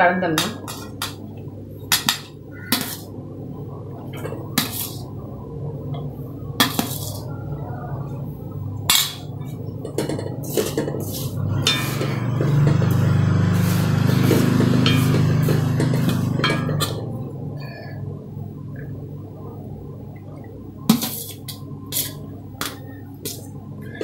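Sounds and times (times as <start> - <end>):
steady low hum: 0.0 - 24.0
wooden spatula scraping rice: 10.4 - 17.0.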